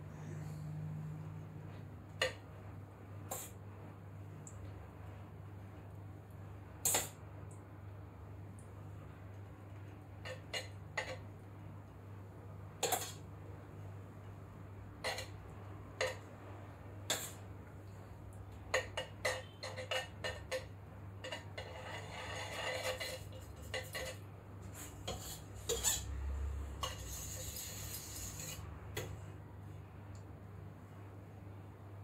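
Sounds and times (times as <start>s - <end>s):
knife scraping metal bowl: 10.2s - 11.3s, 12.8s - 13.2s, 15.0s - 15.4s, 17.1s - 17.4s, 18.7s - 26.2s, 26.8s - 28.7s.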